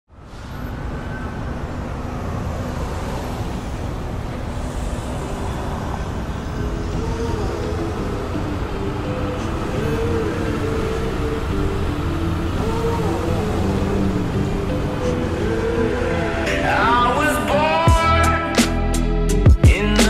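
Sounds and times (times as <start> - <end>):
city traffic rumble: 0.1 - 20.0
higher held tones: 4.7 - 19.0.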